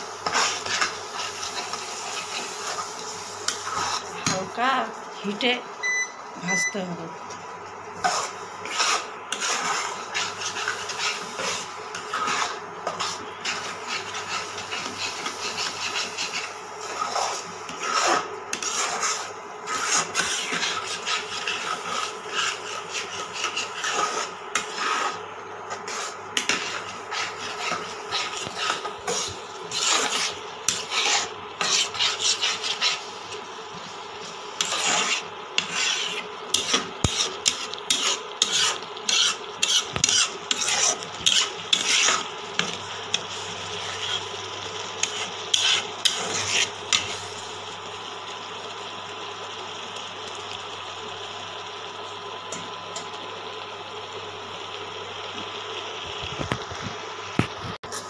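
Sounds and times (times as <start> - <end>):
spatula scraping a pan: 0.0 - 4.7, 7.9 - 47.5.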